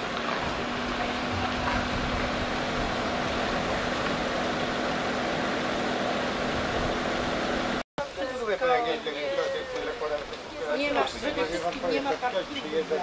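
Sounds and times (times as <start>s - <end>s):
low machinery drone: 0.0s - 7.8s
outdoor noise: 0.0s - 13.0s.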